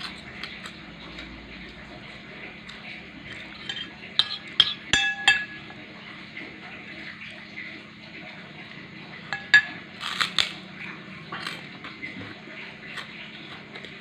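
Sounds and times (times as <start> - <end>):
spoon clinking on plate: 3.3 - 5.8, 9.3 - 9.8.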